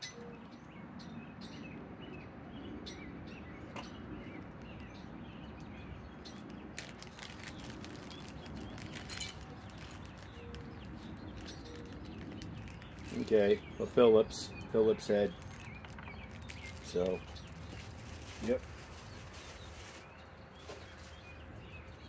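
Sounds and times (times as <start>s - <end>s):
plastic packet crinkling: 6.7s - 13.6s, 15.2s - 21.2s.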